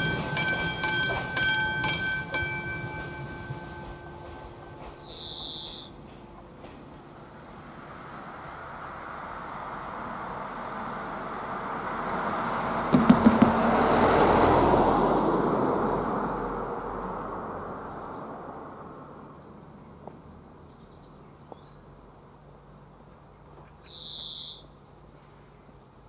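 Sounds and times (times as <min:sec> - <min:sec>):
car tyre noise: 0:12.3 - 0:15.5
wheels thumping over rails: 0:12.8 - 0:14.8.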